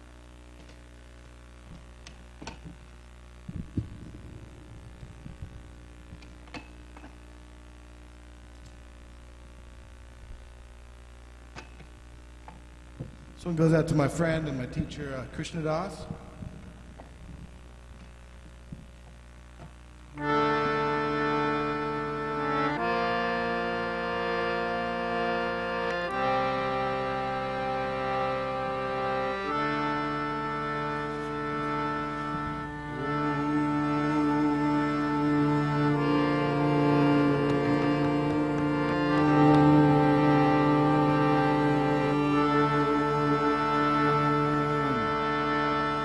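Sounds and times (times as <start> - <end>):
harmonium chords: 0.0 - 18.5, 20.1 - 46.0
electrical hum: 0.0 - 46.0
soft low handling thumps: 1.6 - 6.5, 15.9 - 19.8.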